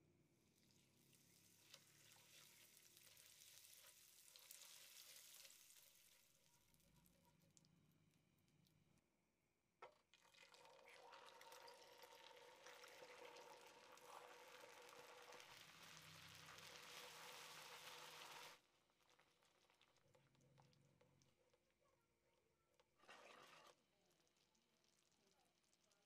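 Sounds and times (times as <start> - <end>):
caramel sizzling and bubbling: 0.5 - 7.0, 10.3 - 21.4, 23.0 - 26.0
milk pouring into pan: 0.8 - 6.3, 9.8 - 21.4.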